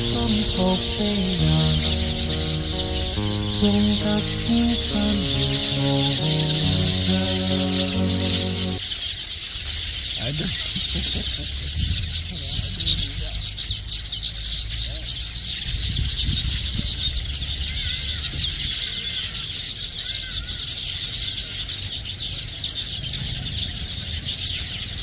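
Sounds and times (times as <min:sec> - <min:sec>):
birds chirping in a colony: 0:00.0 - 0:08.8.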